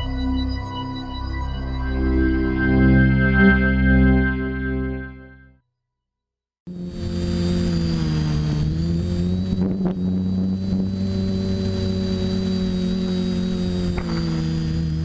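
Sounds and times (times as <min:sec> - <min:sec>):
quadcopter motors droning: 0:06.7 - 0:15.0.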